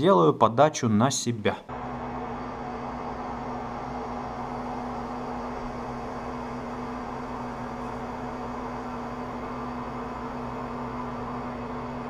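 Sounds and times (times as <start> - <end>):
metal lathe humming: 1.7 - 12.0.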